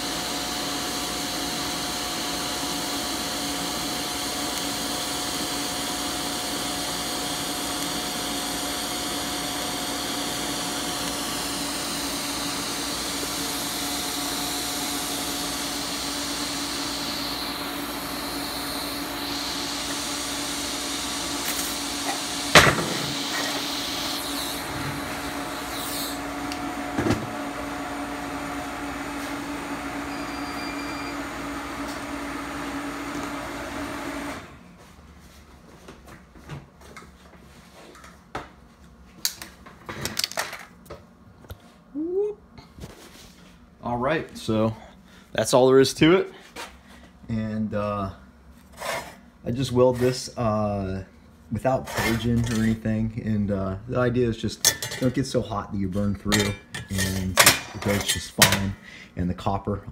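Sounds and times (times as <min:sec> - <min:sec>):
welding arc hiss: 0:00.0 - 0:26.6
welder machine hum: 0:00.0 - 0:34.6.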